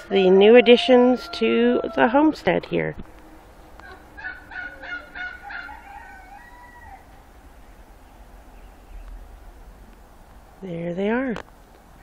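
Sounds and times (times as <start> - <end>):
rooster crowing: 0.0 - 2.4, 3.4 - 7.2.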